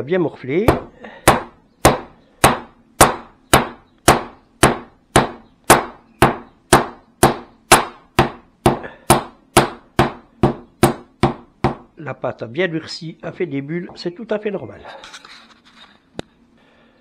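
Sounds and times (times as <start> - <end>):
rolling pin whacking dough: 0.7 - 11.9.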